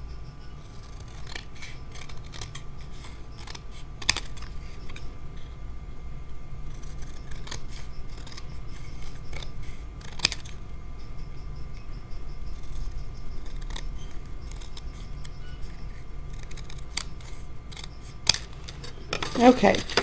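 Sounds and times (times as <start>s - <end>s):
scissors cutting paper: 0.6s - 5.1s, 6.7s - 10.6s, 12.5s - 20.0s.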